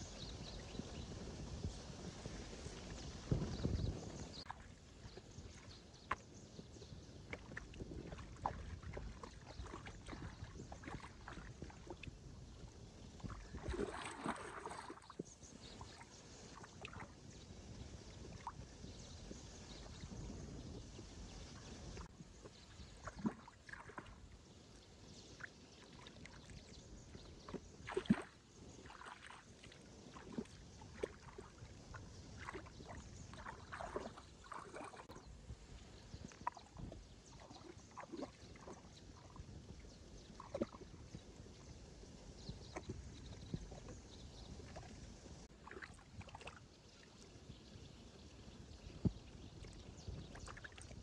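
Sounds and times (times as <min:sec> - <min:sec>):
water sloshing and splashing: 0:07.1 - 0:17.4, 0:21.6 - 0:24.5, 0:25.4 - 0:41.6, 0:42.5 - 0:47.3, 0:48.8 - 0:51.0.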